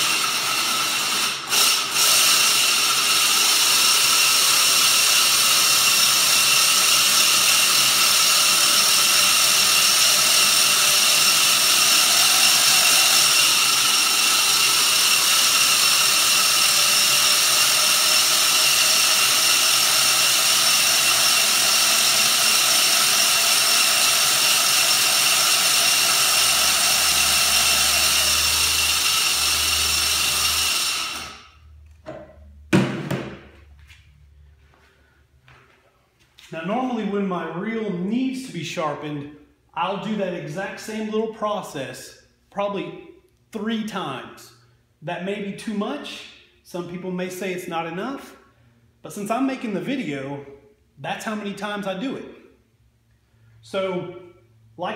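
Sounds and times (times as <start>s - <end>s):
electric drill whine: 0.0s - 31.6s.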